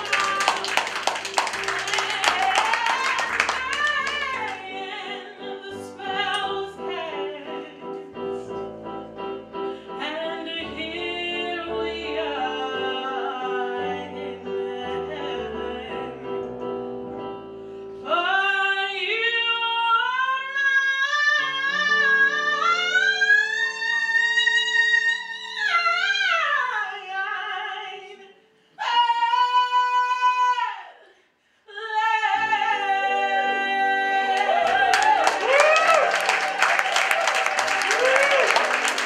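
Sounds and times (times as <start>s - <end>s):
woman singing with vibrato: 0.0s - 8.0s, 9.9s - 16.3s, 18.0s - 31.1s, 31.7s - 36.2s.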